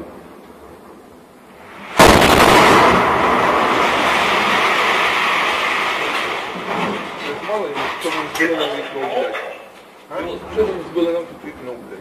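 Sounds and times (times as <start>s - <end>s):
echoing rumble: 1.6s - 8.1s
loud explosion blast: 1.8s - 7.4s.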